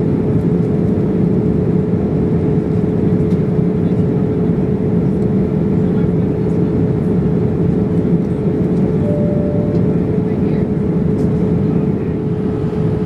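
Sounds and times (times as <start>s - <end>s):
airliner cabin engine roar: 0.0s - 13.0s
constant hum: 0.0s - 13.0s
brief higher tone: 9.0s - 10.5s.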